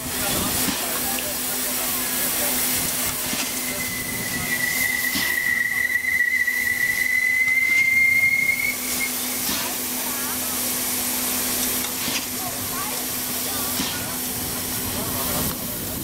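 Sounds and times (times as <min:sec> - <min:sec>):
steam hissing: 0:00.0 - 0:16.0
high locomotive whistle: 0:03.6 - 0:09.3.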